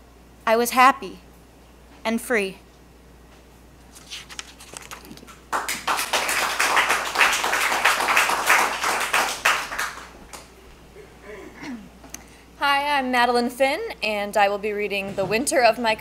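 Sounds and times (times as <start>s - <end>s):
audience applauding: 5.5s - 10.5s.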